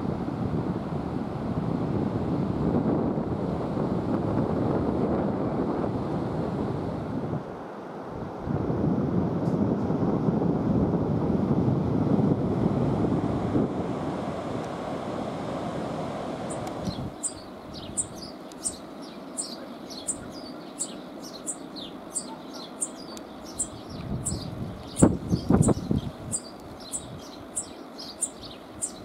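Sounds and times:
wind buffeting microphone: 0.0s - 22.2s, 22.8s - 29.0s
bird giving high short chirps: 16.5s - 29.0s.

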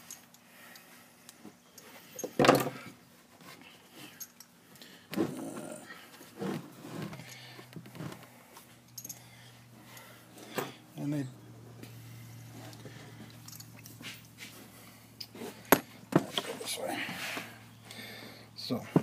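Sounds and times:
metal tools clinking: 8.8s - 9.3s, 12.7s - 14.4s.

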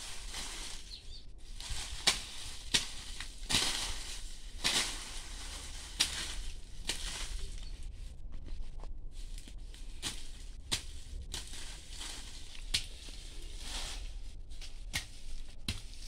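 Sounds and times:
dry stalks rustling: 0.0s - 16.0s
stalks snapping: 1.8s - 5.0s, 5.9s - 7.4s, 12.5s - 13.2s.

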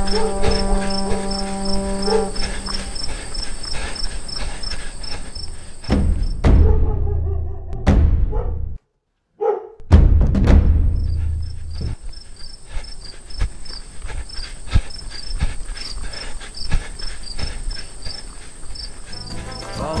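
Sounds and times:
deep hit with low rumble: 7.8s - 8.8s, 9.9s - 11.6s.

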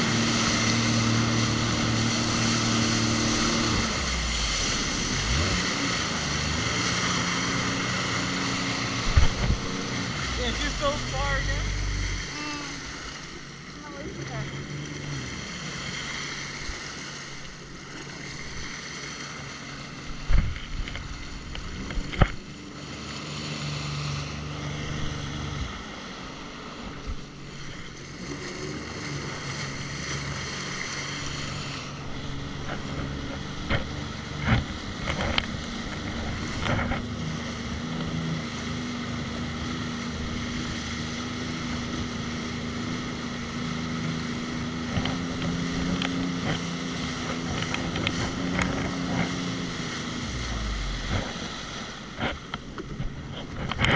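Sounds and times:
jet ski engine running: 0.0s - 53.9s
wind noise on microphone: 8.9s - 10.2s.

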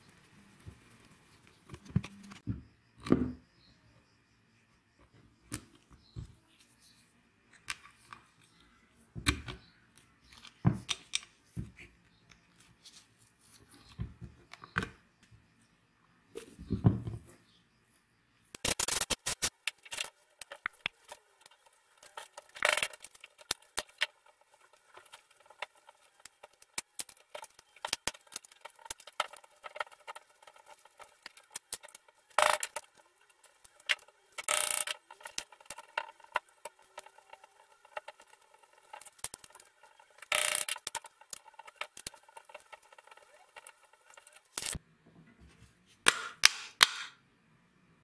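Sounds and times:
aerosol spray can hissing: 18.6s - 19.5s.

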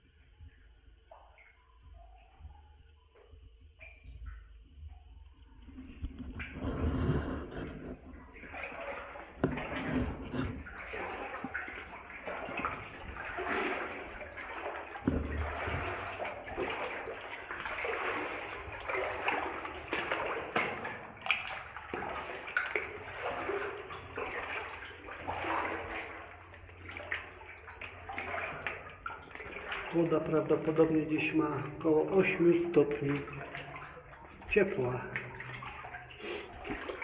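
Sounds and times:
water sloshing around wading legs: 0.0s - 37.0s.

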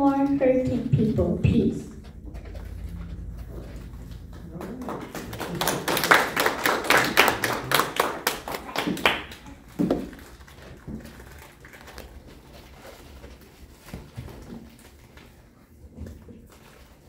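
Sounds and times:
audience clapping: 4.1s - 10.2s.

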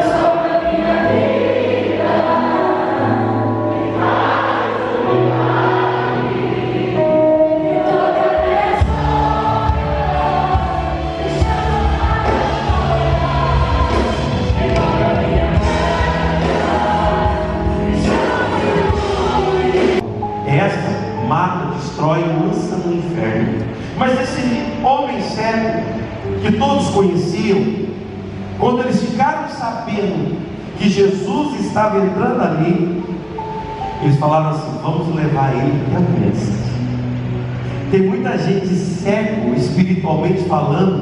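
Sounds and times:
several voices singing: 0.0s - 20.2s
church band playing: 0.0s - 41.0s.

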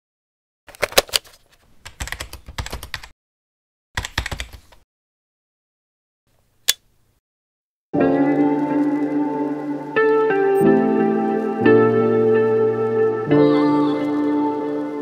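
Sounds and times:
plastic phone clicks and rattles: 0.7s - 1.4s.

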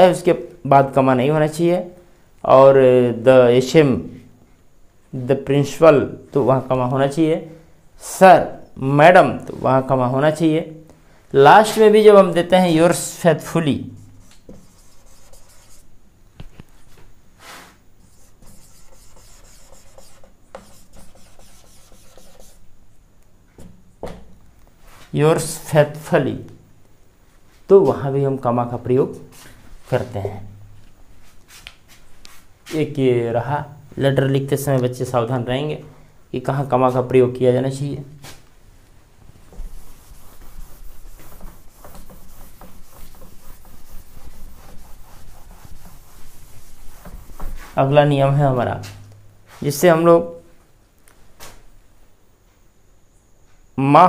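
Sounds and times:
marker squeaking on whiteboard: 14.0s - 15.9s, 18.0s - 22.6s, 39.8s - 47.6s.

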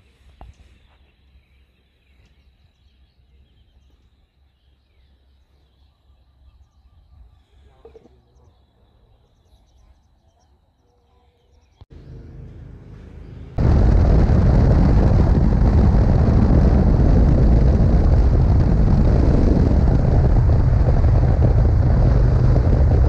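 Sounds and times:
steady low rumble: 11.9s - 23.0s.

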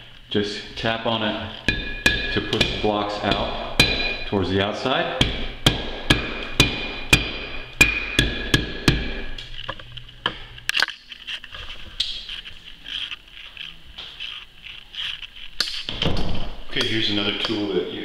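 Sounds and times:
rubber mallet knocking on glass: 1.7s - 4.2s.

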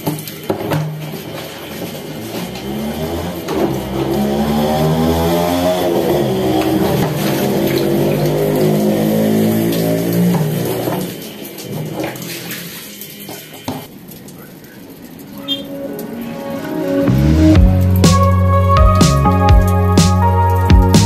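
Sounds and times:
water splashing onto concrete: 0.0s - 16.3s, 17.1s - 21.0s
background music: 15.4s - 21.0s.

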